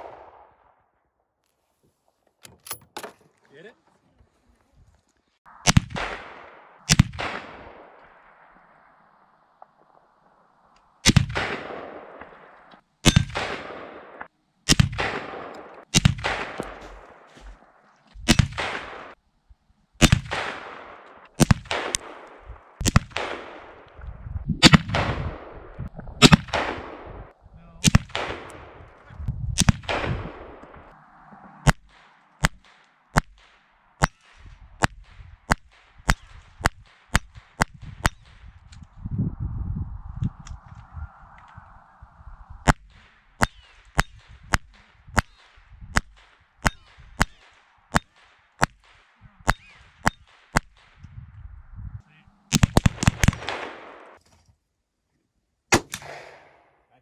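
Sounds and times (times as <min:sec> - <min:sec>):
rifle shots echoing: 0:00.0 - 0:00.8, 0:05.5 - 0:10.3, 0:11.0 - 0:19.2, 0:20.0 - 0:24.0, 0:24.6 - 0:38.6, 0:42.6 - 0:51.0, 0:52.5 - 0:54.2, 0:55.7 - 0:56.8
sharp cracks: 0:05.5 - 0:19.2, 0:20.0 - 0:39.0, 0:42.6 - 0:51.2, 0:52.4 - 0:54.4, 0:55.7 - 0:56.8.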